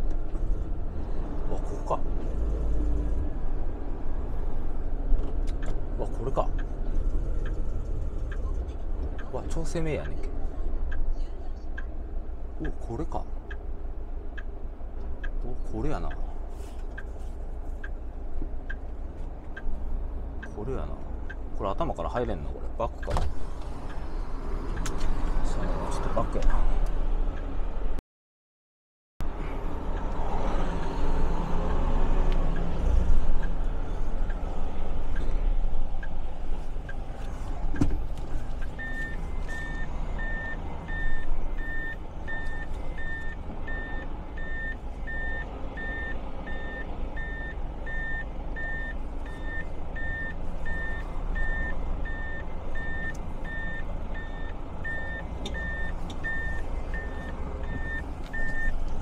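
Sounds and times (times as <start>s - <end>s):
truck engine rumbling: 0.0s - 28.0s, 29.2s - 59.0s
reversing alarm beeping: 38.8s - 58.7s.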